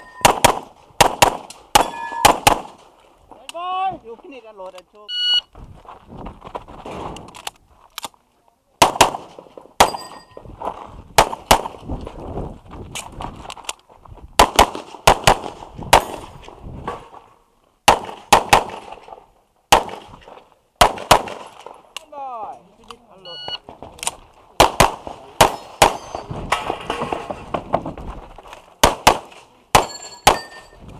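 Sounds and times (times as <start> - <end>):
pistol shots: 0.0 - 2.8, 8.8 - 10.2, 11.2 - 11.8, 14.4 - 16.3, 17.9 - 19.0, 19.7 - 20.1, 20.8 - 21.6, 24.6 - 26.3, 28.8 - 30.7
steel target ringing: 1.8 - 2.3, 9.8 - 10.4
shuffling movement: 5.6 - 8.0.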